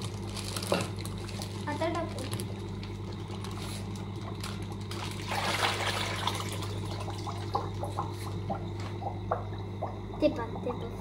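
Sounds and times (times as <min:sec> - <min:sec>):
water splashing and trickling: 0:04.9 - 0:08.3.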